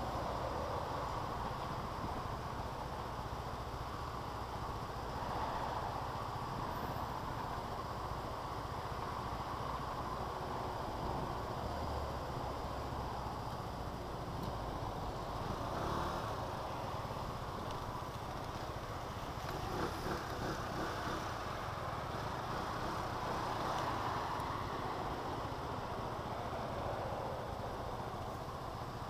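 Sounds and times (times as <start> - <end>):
wind and road noise: 0.0 - 29.0
scooter engine running: 15.4 - 24.1.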